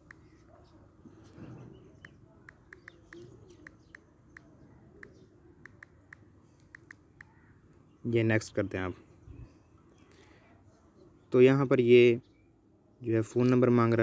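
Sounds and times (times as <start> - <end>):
smartphone key-tap clicks: 2.0 - 7.3.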